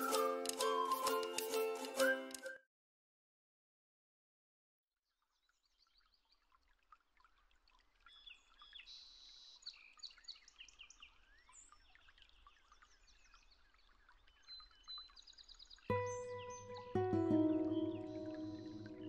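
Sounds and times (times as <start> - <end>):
songbirds chirping: 5.5 - 19.0.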